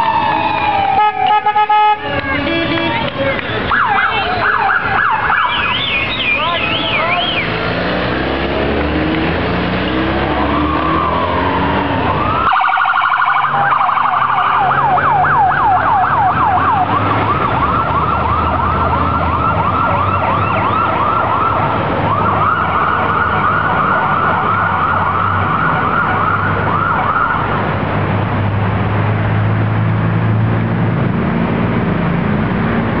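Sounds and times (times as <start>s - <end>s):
police siren wailing and yelping: 0.0s - 2.0s, 3.6s - 7.7s, 9.9s - 27.6s
traffic rumble: 0.0s - 33.0s.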